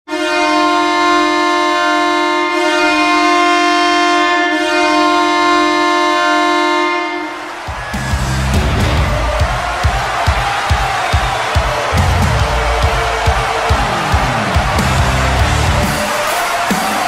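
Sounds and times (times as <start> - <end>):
goal horn blast: 0.1 - 10.4, 11.8 - 17.0
music with a beat: 7.7 - 17.0.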